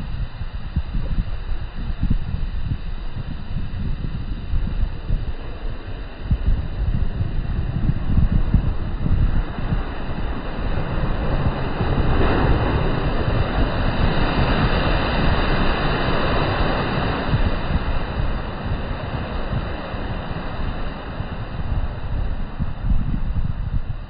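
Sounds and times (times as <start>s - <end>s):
wind rumbling on microphone: 0.0s - 24.0s
surf breaking on shore: 4.8s - 22.9s.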